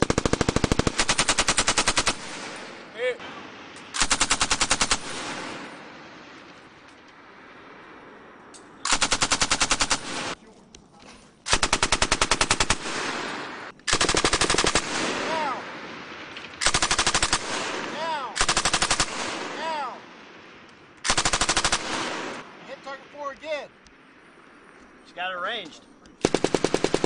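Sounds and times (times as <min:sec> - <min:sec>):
machine gun bursts: 0:00.0 - 0:02.6, 0:04.0 - 0:05.4, 0:08.9 - 0:10.4, 0:11.5 - 0:15.2, 0:16.6 - 0:17.7, 0:18.4 - 0:19.4, 0:21.1 - 0:22.4, 0:26.2 - 0:27.0.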